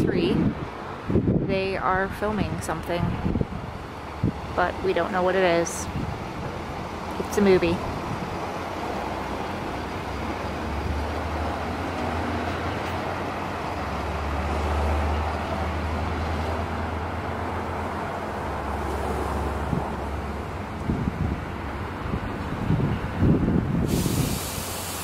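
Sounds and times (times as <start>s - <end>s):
steady low rumble: 0.0s - 11.9s.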